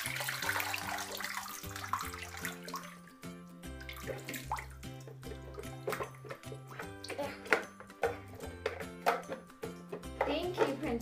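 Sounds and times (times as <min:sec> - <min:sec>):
water pouring into bathtub: 0:00.0 - 0:07.4.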